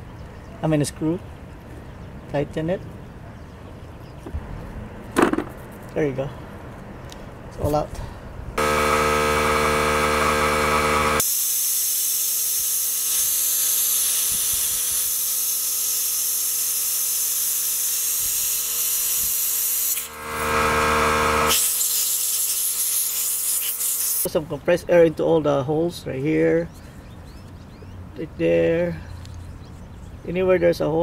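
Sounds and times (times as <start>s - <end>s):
compressed air hissing: 8.6s - 24.3s
motor running: 8.6s - 24.3s.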